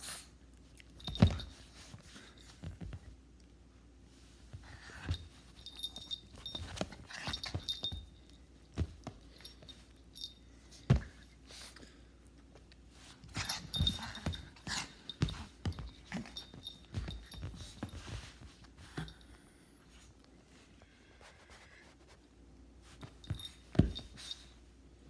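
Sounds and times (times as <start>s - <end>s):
soft thumps and bumps: 4.5s - 9.8s, 13.4s - 18.6s, 23.0s - 24.3s.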